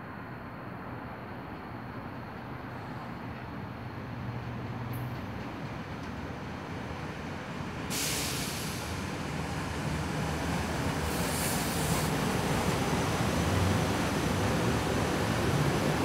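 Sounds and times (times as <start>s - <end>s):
train wheels rumbling on rails: 1.4s - 16.0s
sudden hiss: 7.9s - 8.9s, 11.0s - 12.2s.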